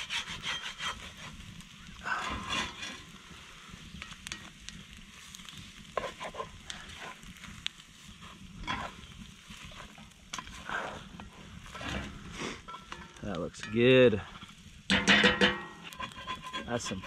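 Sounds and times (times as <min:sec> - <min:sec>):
spatula scraping eggs in skillet: 0:00.0 - 0:03.2, 0:05.1 - 0:13.2, 0:14.2 - 0:17.0
eggs frying: 0:01.8 - 0:13.2.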